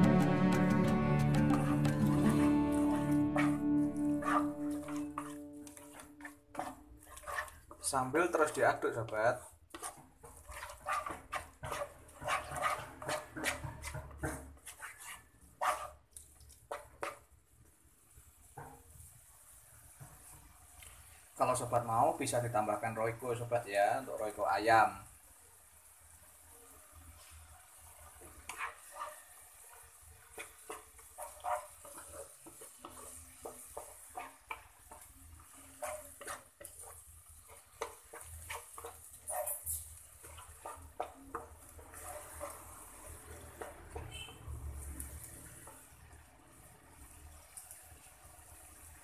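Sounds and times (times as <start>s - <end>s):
wooden spatula scraping frying pan: 1.3s - 17.3s, 27.1s - 46.2s.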